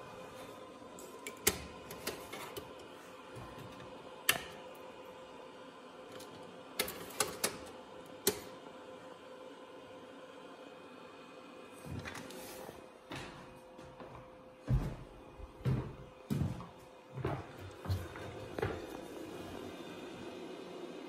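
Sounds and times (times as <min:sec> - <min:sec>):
server equipment hum: 0:00.0 - 0:21.0.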